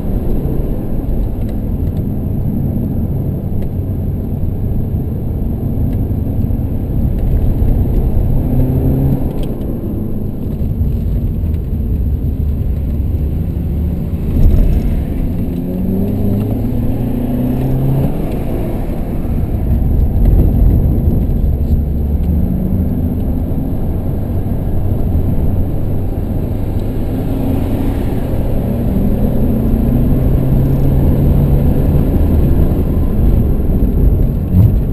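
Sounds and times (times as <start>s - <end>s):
tyre and road rumble: 0.0s - 34.9s
car engine revving: 12.3s - 34.9s.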